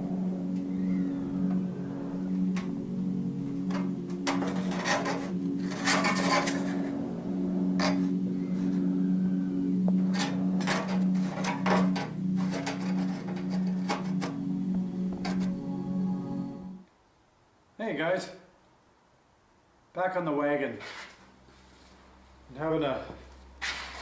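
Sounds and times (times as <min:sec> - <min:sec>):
steady low hum: 0:00.0 - 0:17.8
sheet steel scraping and clinking: 0:03.7 - 0:07.0, 0:07.8 - 0:08.1, 0:10.1 - 0:14.4.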